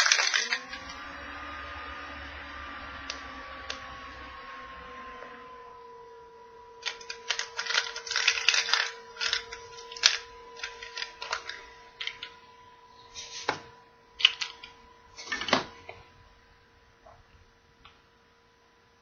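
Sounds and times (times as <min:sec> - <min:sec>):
plastic halves snapping apart: 0:00.0 - 0:01.0
plastic toy capsule clicking: 0:00.0 - 0:01.0, 0:06.8 - 0:12.4, 0:14.2 - 0:15.7
faint steady hum: 0:00.0 - 0:19.0.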